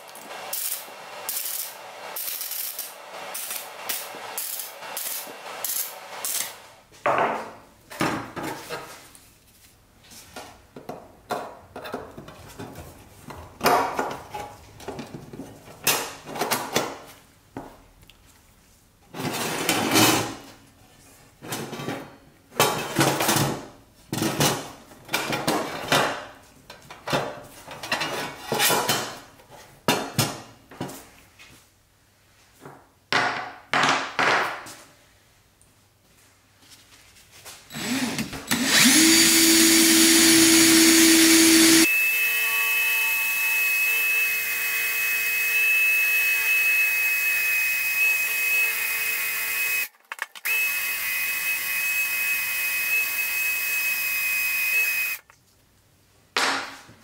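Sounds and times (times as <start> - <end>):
welder crackling: 0.0 - 6.6.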